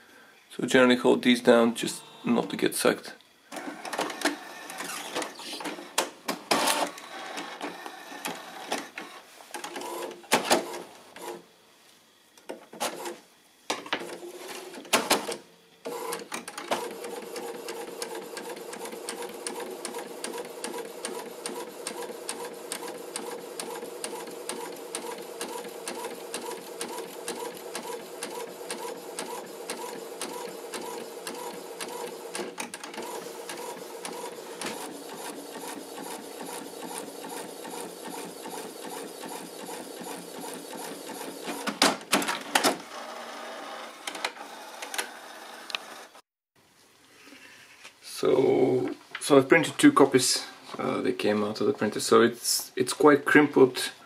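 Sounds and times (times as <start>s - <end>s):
printer motor hum: 1.7s - 2.6s, 3.5s - 11.5s, 14.0s - 46.2s
printer paper feed whirs and clicks: 3.5s - 11.5s, 12.4s - 46.2s.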